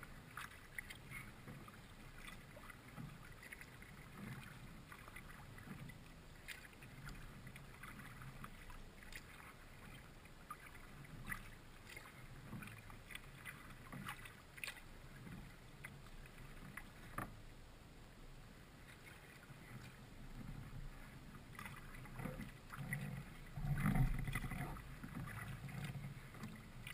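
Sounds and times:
paddle splashing in water: 0.0s - 17.5s, 18.7s - 26.9s
water washing along hull: 0.0s - 26.9s
water drips: 23.7s - 26.9s.

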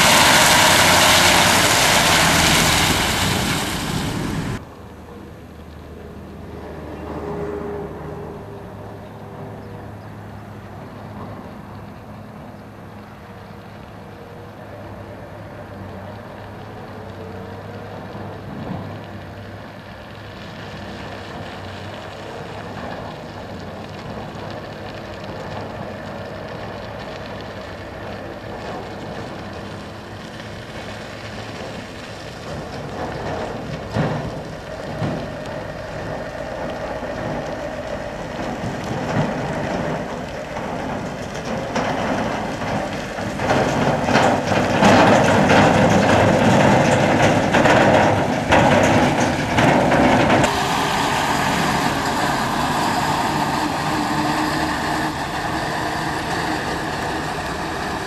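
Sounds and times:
truck diesel engine running: 0.0s - 5.6s, 20.2s - 58.0s.

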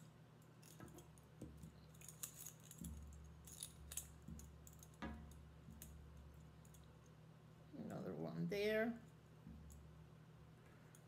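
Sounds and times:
metallic clicks of wire coiling: 0.0s - 7.2s.

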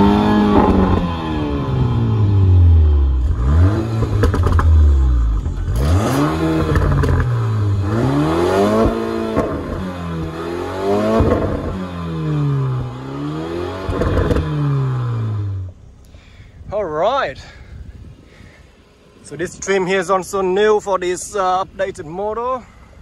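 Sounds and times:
car engine revving: 0.0s - 15.9s.

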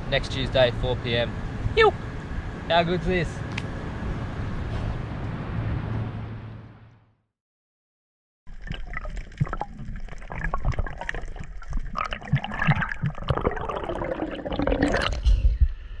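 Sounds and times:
underwater bubbling: 8.5s - 15.4s
muffled underwater water movement: 8.5s - 15.8s.

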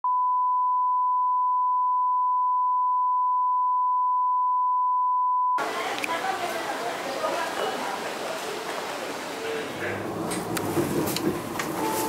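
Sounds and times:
steady test tone beep: 0.0s - 5.6s.

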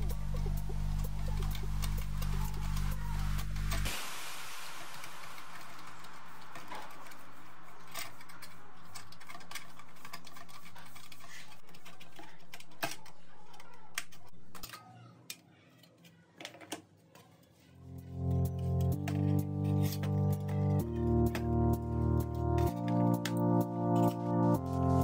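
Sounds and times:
background hum: 0.0s - 3.9s.

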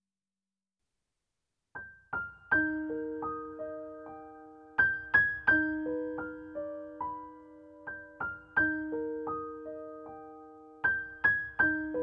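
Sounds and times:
piano notes ringing: 2.5s - 12.0s.

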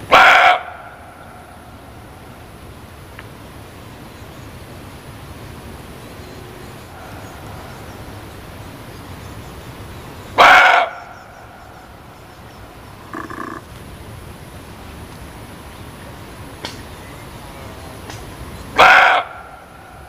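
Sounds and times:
deer barking: 0.0s - 1.1s, 10.4s - 11.2s, 13.0s - 13.7s, 18.8s - 19.7s
steady background hiss: 0.0s - 20.0s.

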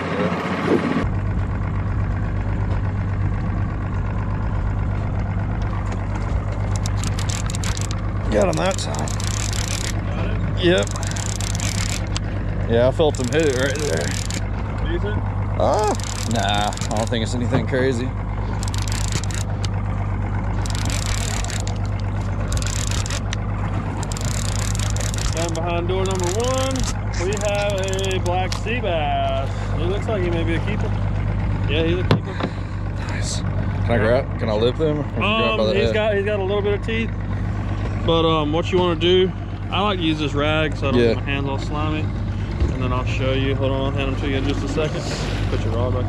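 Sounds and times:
outboard motor idling: 0.0s - 46.0s
fishing reel whirring and clicking: 6.6s - 10.0s, 10.7s - 12.3s, 13.1s - 14.5s, 15.8s - 17.2s, 18.5s - 19.8s, 20.5s - 28.7s.

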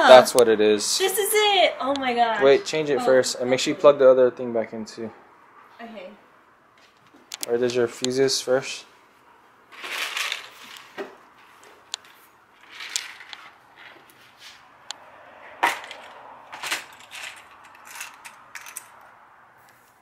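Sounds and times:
plastic box of fuses rattling: 9.8s - 11.0s, 11.9s - 14.0s, 15.7s - 19.0s.

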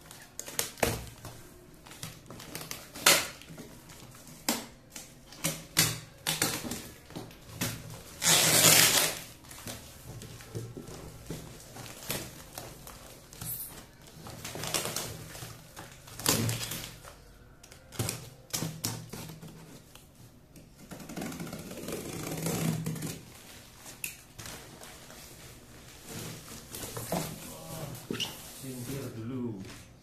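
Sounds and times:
plastic wrapping rustling: 0.0s - 30.0s
cardboard scraping and crumpling: 20.8s - 29.2s.

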